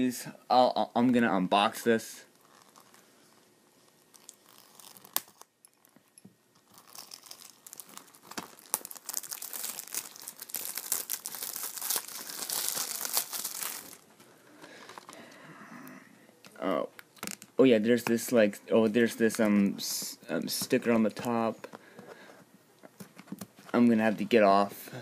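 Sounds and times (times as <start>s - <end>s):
shrink wrap crinkling: 2.3s - 15.2s.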